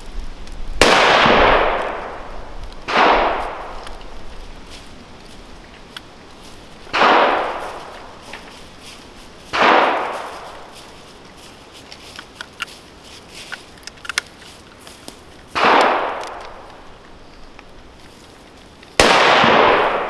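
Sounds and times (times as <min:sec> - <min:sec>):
rifle shots echoing: 0:00.8 - 0:04.0, 0:06.8 - 0:08.2, 0:09.5 - 0:10.8, 0:15.5 - 0:16.9, 0:19.0 - 0:20.0.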